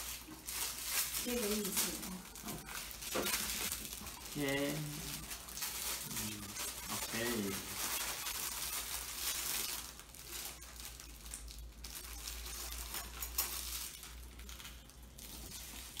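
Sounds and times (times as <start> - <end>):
plastic wrapping crinkling: 0.0 - 16.0.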